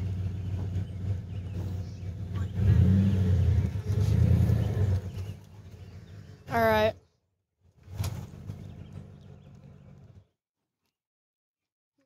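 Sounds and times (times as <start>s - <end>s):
truck engine revving: 0.0s - 6.9s, 7.8s - 10.3s.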